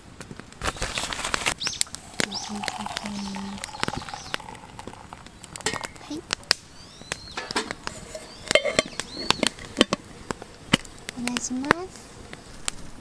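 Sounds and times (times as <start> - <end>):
high whistled calls: 1.6 - 6.1, 6.7 - 7.5, 8.2 - 9.6.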